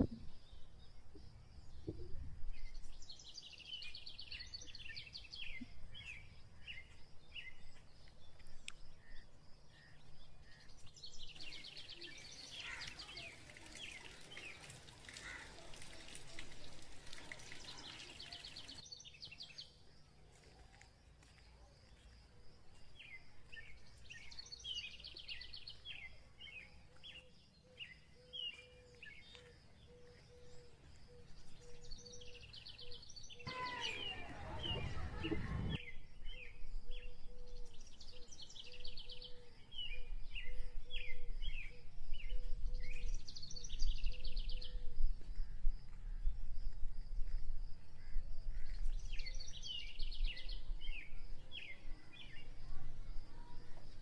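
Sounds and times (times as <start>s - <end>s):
small birds chirping: 0.0s - 54.0s
rain falling: 12.9s - 18.8s.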